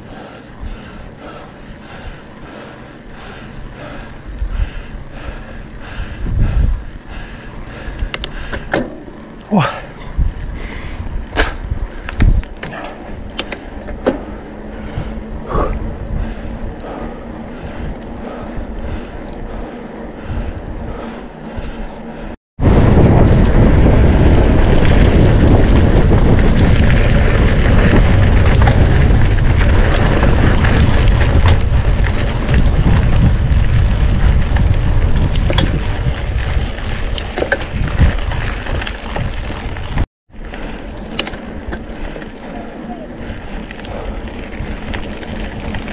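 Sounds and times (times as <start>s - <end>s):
wind rumble on microphone: 0.0s - 9.0s, 9.6s - 45.9s
bike clicks and rattles: 0.0s - 45.9s
bike tyres rolling: 0.0s - 45.9s.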